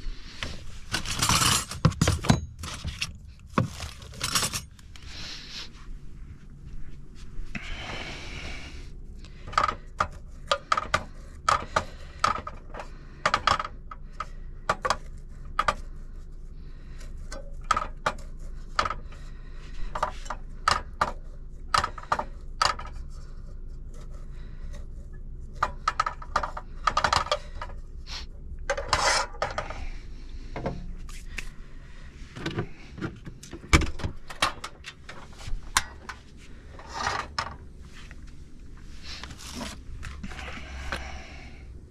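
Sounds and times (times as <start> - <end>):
steady low hum: 0.0 - 41.9
rustling: 35.0 - 41.3.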